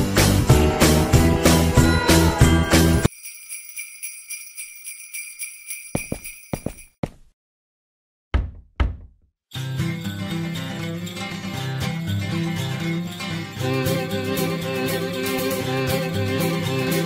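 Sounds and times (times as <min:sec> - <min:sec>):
music: 0:00.0 - 0:03.1, 0:09.5 - 0:17.0
jingle bells shaken: 0:01.8 - 0:07.0, 0:09.8 - 0:17.0.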